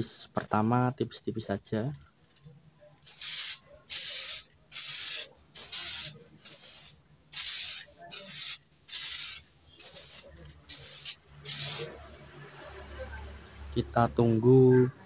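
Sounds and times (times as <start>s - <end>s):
aerosol spray can hissing: 3.0s - 12.0s.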